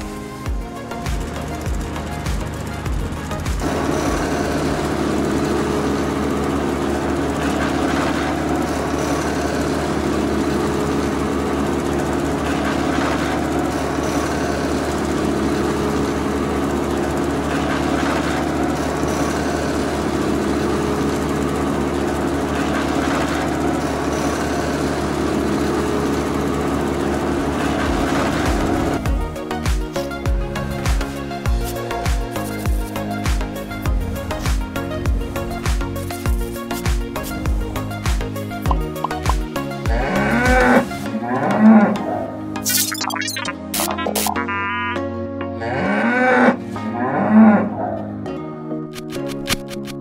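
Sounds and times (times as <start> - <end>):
chaff cutter motor droning: 0.0 - 42.6.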